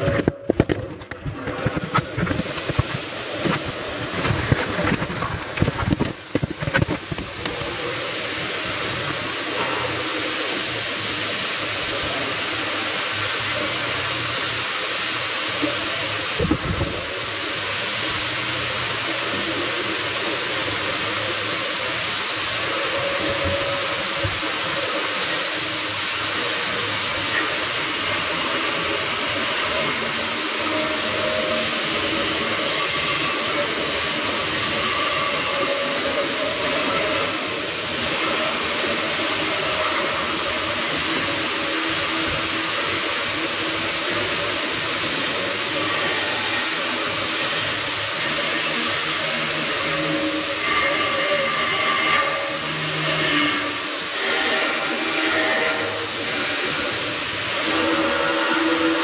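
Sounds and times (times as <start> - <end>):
arc welding hiss and crackle: 0.0 - 59.0.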